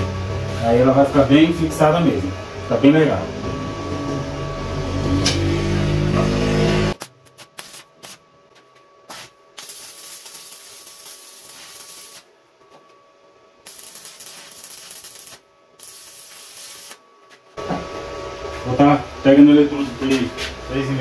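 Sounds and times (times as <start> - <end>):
welding arc crackling and hissing: 7.0 - 8.2, 9.1 - 12.3, 13.6 - 17.0
welding arc strikes: 7.0 - 8.2, 9.1 - 12.3, 13.6 - 17.0.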